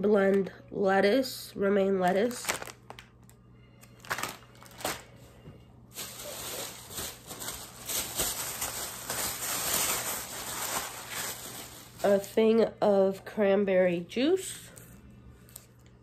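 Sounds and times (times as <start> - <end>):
plastic bag rustling: 2.0 - 3.1, 3.8 - 12.6.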